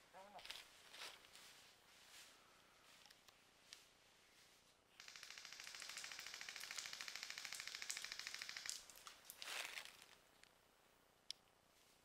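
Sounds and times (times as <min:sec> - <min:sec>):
airsoft gun full-auto burst: 0:05.0 - 0:08.8.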